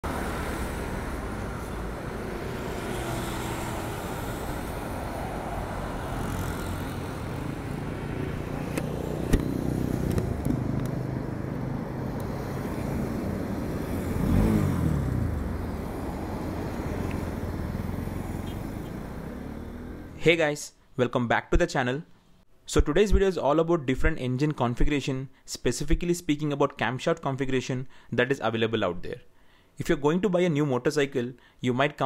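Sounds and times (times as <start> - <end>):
motorcycle engine idling and revving: 0.0 - 20.2
road traffic: 0.0 - 20.2.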